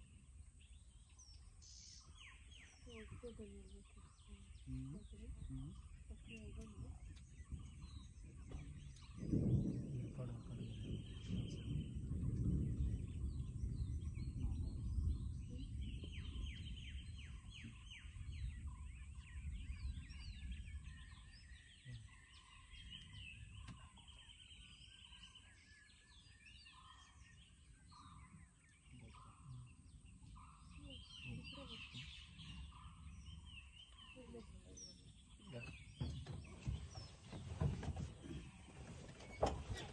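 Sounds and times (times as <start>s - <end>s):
low rumble: 0.0s - 25.1s
forest birds calling: 0.0s - 39.9s.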